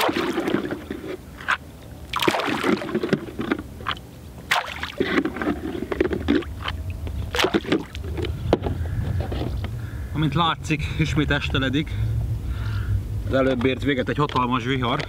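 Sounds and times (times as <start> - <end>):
water splashing: 0.0 - 8.2.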